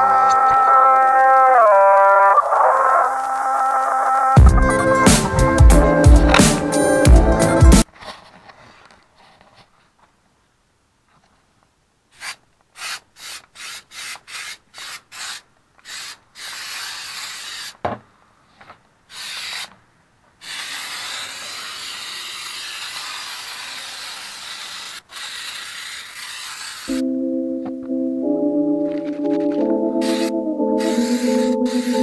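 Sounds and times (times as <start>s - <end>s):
aerosol can spraying: 12.8s - 17.8s, 19.1s - 19.7s, 20.4s - 27.0s, 30.0s - 32.0s.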